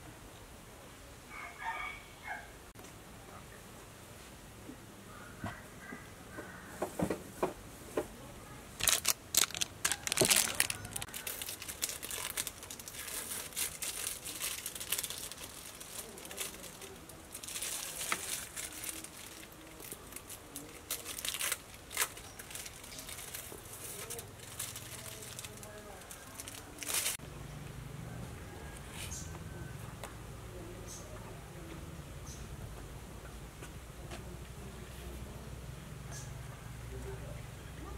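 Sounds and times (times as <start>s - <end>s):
plastic wrapper crinkling: 8.8s - 27.2s.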